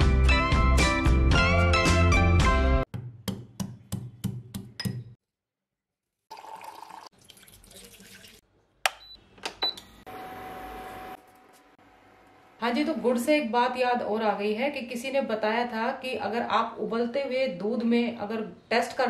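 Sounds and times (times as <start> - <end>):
background music: 0.0 - 2.9.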